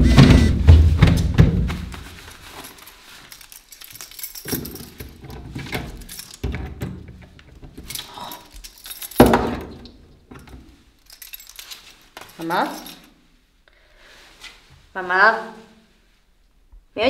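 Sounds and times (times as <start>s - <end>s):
loud low boom: 0.0s - 1.2s
keys jangling in door lock: 2.3s - 13.2s.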